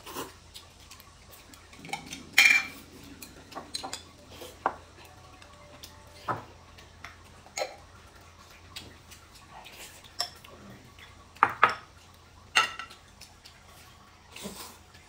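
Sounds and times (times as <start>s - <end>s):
chopsticks tapping porcelain bowls: 1.8s - 6.4s.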